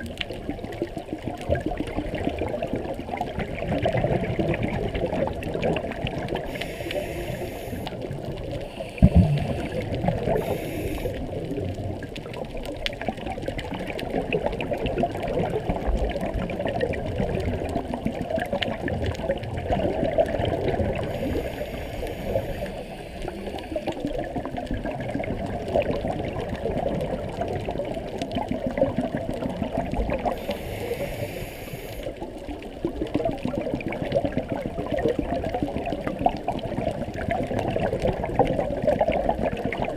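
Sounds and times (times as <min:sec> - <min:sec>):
crackling clicks underwater: 0:00.0 - 0:39.9
underwater water rush: 0:00.0 - 0:39.9
hissing bubble bursts: 0:01.6 - 0:12.0, 0:14.5 - 0:32.3.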